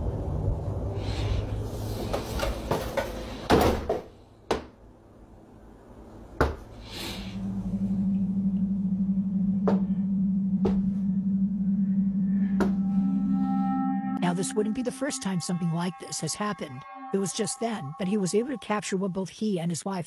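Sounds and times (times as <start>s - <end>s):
outdoor rumble: 5.3s - 13.2s
low musical drone: 7.2s - 19.2s.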